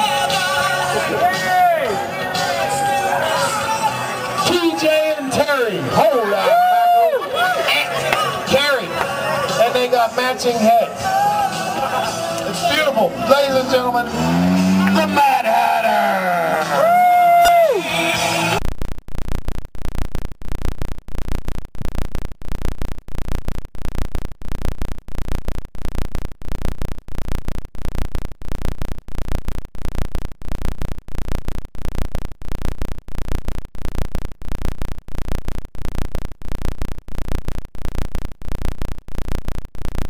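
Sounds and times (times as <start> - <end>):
stuck audio loop repeating: 18.6 - 40.0.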